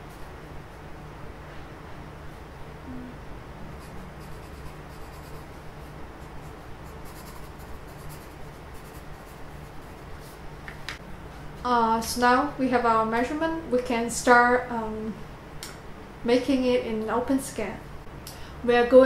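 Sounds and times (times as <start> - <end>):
steady low hum: 0.0 - 19.0
pencil writing on paper: 3.7 - 10.4.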